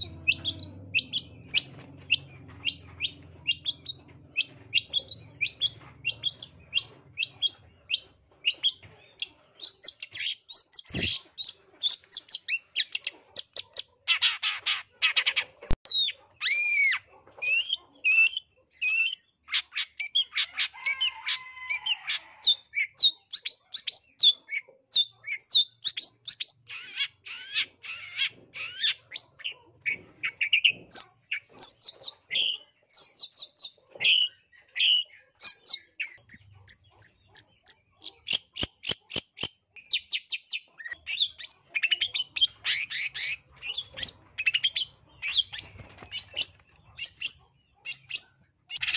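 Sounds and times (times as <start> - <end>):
shrike singing: 0.0 - 8.7, 9.7 - 13.1
harsh buzzy bird scold: 0.0 - 48.9.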